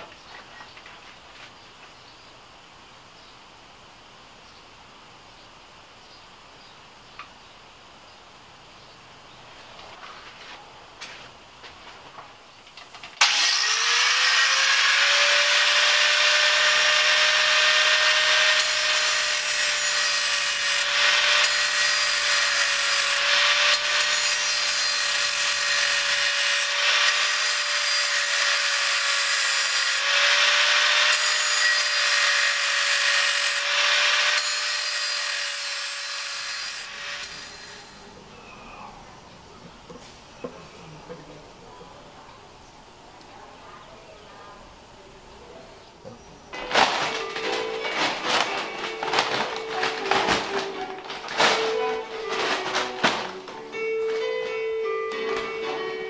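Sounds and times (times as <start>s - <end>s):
grinder grinding metal: 13.2s - 38.1s.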